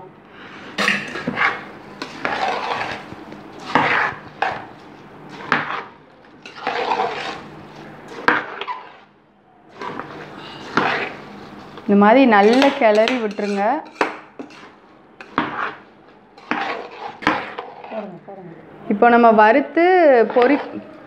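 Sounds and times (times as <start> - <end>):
metal spoon scraping pot: 0.8 - 4.6, 5.3 - 7.5, 8.1 - 9.1, 9.7 - 11.7, 12.3 - 15.8, 16.4 - 18.1, 20.1 - 21.0.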